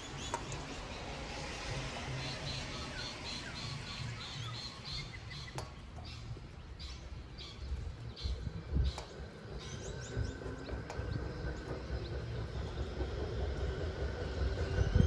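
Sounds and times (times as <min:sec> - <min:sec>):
bird chirping: 0:00.0 - 0:13.0
sharp tick: 0:05.3 - 0:07.5.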